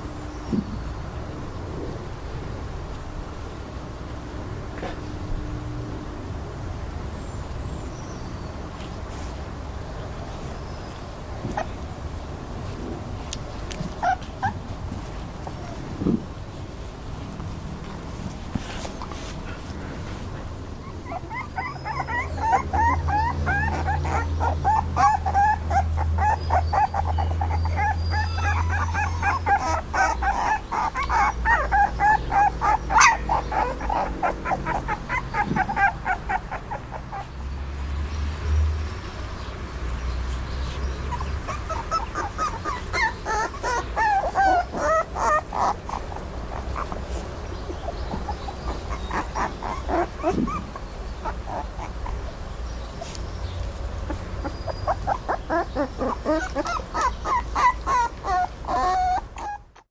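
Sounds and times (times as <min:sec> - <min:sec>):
puppies whining and squeaking: 0:10.8 - 0:11.8, 0:13.8 - 0:16.3, 0:18.4 - 0:37.5, 0:40.3 - 0:59.9.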